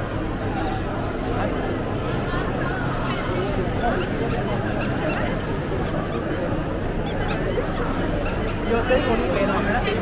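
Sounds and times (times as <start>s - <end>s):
crowd chatter: 0.0s - 10.0s
short high squeaks: 4.0s - 8.9s.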